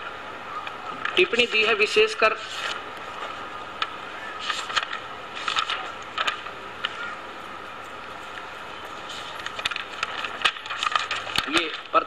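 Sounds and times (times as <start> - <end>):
recording hiss: 0.0 - 12.0
book pages rustling: 2.4 - 7.1, 7.8 - 11.9.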